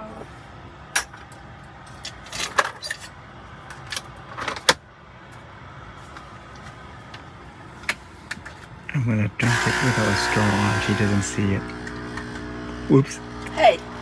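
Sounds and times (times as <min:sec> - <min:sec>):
steady low hum: 0:08.7 - 0:14.0.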